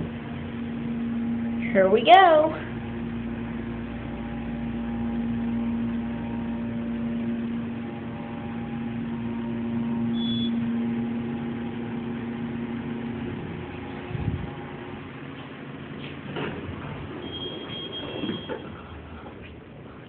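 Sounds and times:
elevator fan: 0.0s - 20.0s
hydraulic pump hum: 0.0s - 20.0s
high beep: 10.1s - 10.6s, 17.2s - 18.8s
elevator car stopping thump: 13.1s - 19.5s.

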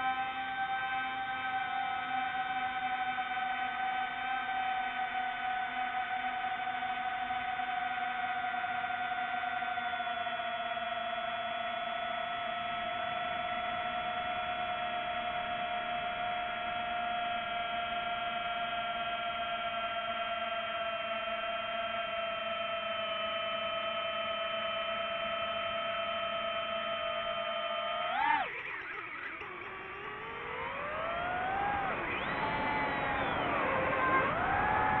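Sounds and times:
drone motors whining: 0.0s - 35.0s.

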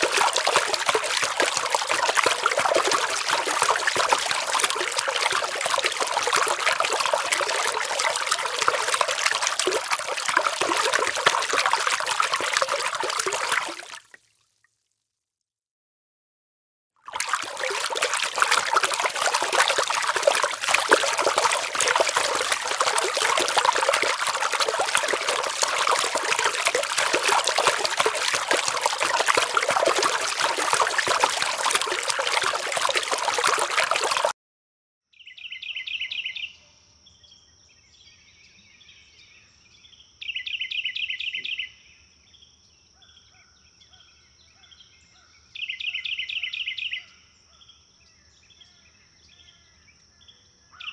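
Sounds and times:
rushing bubbling water: 0.0s - 14.3s, 17.1s - 34.3s.

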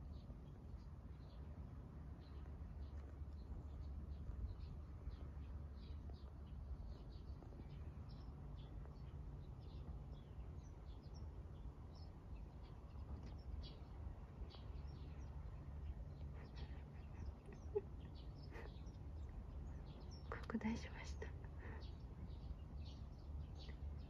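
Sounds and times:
low outdoor rumble: 0.0s - 24.0s
small birds chirping: 0.0s - 24.0s.

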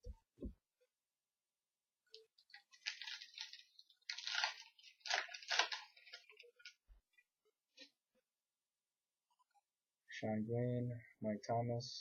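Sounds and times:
wrapper crinkling and rustling: 2.2s - 6.8s.

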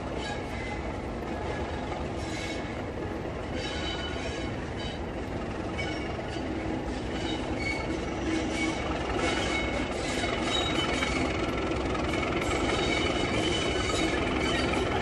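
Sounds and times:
diesel locomotive engine: 0.0s - 15.0s
train rumble: 0.0s - 15.0s
wheel flanges squealing: 3.4s - 15.0s.

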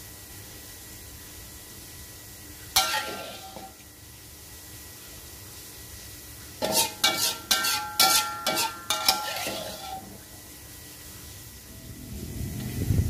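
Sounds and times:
metal spatula scraping a wok: 2.8s - 3.8s, 6.6s - 10.4s.

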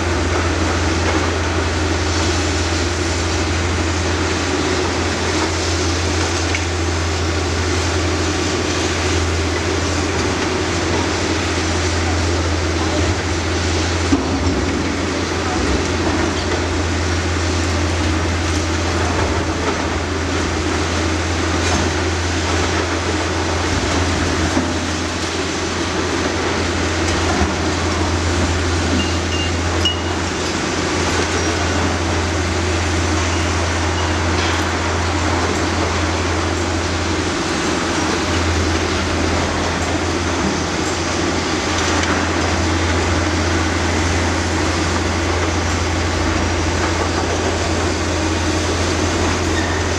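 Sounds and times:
demolition machinery rumbling: 0.0s - 49.9s.

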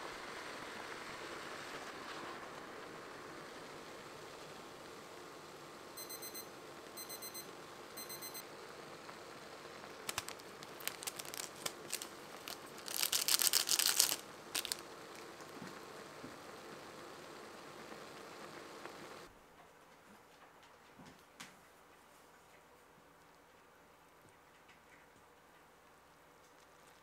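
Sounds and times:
kitchen timer beeping: 6.0s - 8.4s
packet crinkling and tearing: 10.0s - 15.3s.

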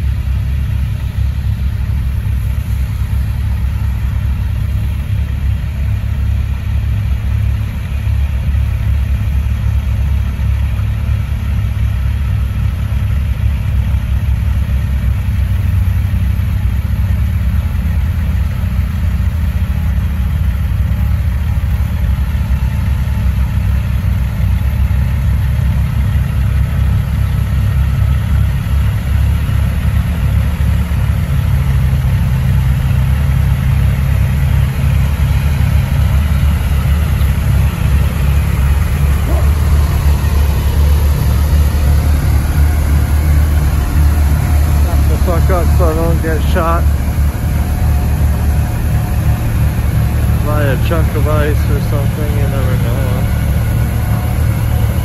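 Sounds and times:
heavy diesel engines running: 0.0s - 55.0s.

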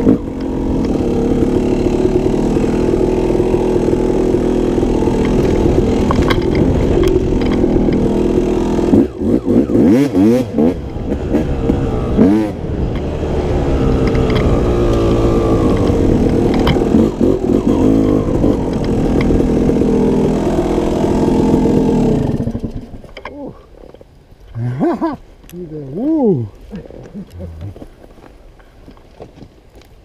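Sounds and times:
dirt bike engine revving: 0.0s - 23.0s.

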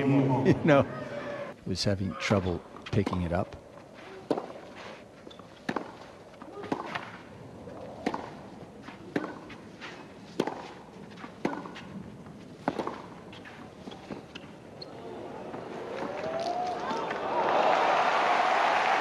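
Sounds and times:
racket hitting tennis ball: 4.1s - 5.0s, 5.6s - 14.5s.

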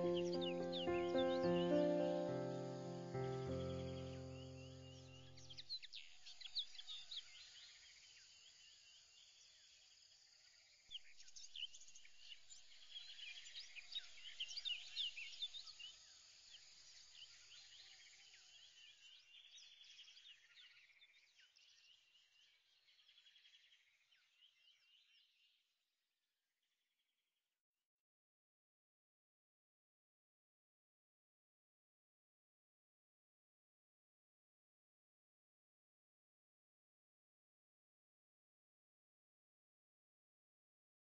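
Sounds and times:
faint bird chirps: 0.0s - 9.9s, 10.6s - 25.6s.

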